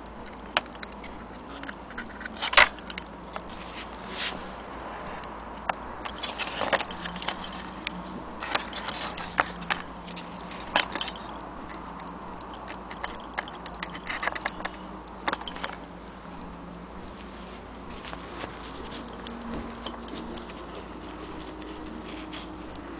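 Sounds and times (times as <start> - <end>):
steady low hum: 0.0 - 22.9
small metallic clicks and taps: 5.4 - 17.2.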